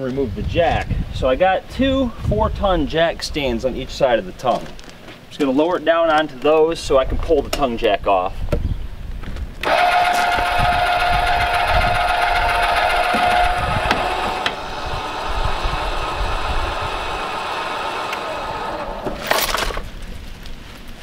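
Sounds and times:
electric jack motor whining: 0:09.6 - 0:19.8.

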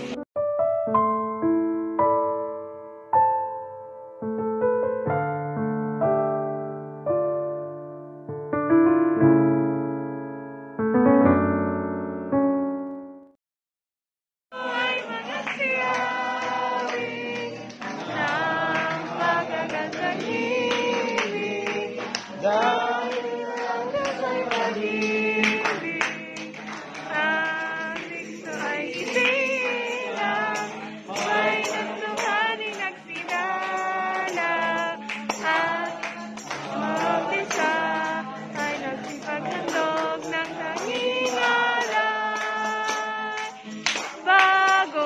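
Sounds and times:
group singing worship song: 0:14.5 - 0:45.0.

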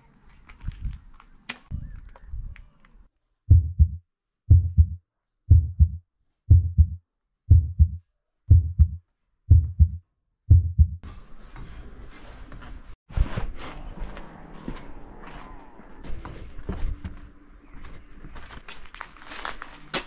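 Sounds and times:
background noise: 0:00.0 - 0:20.0
muffled heartbeat thumps: 0:03.5 - 0:11.0.

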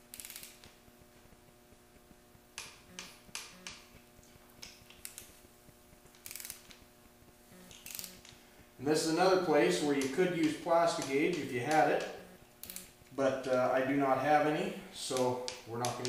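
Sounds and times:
torque wrench clicking: 0:00.0 - 0:00.8, 0:04.6 - 0:05.4, 0:06.0 - 0:06.9, 0:07.6 - 0:08.4, 0:09.6 - 0:13.7, 0:15.1 - 0:16.0
faint steady hum: 0:00.0 - 0:16.0.

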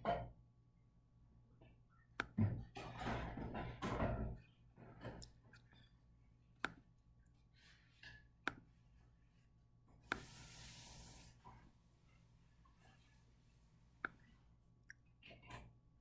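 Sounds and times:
soft hiss: 0:10.1 - 0:11.6.

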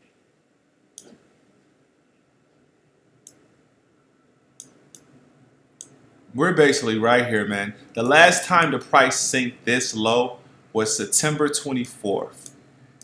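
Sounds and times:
computer mouse clicking: 0:04.6 - 0:05.1.

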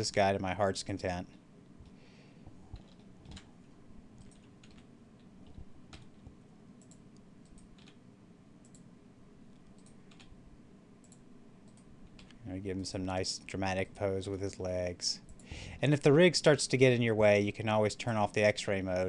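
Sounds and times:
low steady hum: 0:00.0 - 0:19.0
keyboard and mouse clicks: 0:02.7 - 0:03.5, 0:04.2 - 0:08.0, 0:08.6 - 0:08.9, 0:09.5 - 0:10.4, 0:11.0 - 0:12.4.

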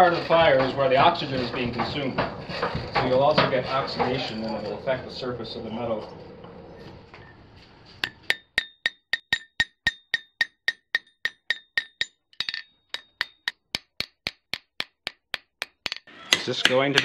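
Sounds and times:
hammer striking metal on anvil: 0:08.0 - 0:17.0.

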